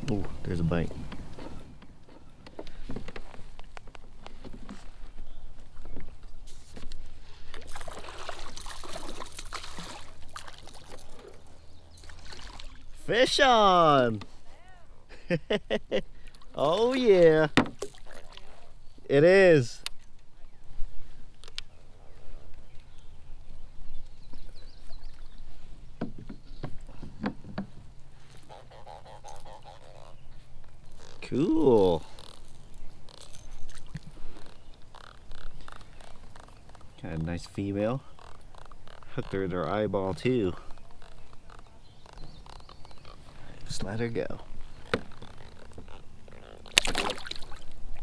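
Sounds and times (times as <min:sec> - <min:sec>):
fish splashing in water: 0:07.7 - 0:11.0, 0:46.6 - 0:47.8.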